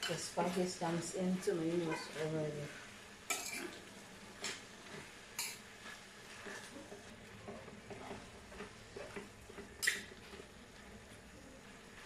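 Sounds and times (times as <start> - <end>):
food sizzling: 0.0 - 12.0
metal spoon scraping a frying pan: 3.3 - 3.8, 4.4 - 6.9.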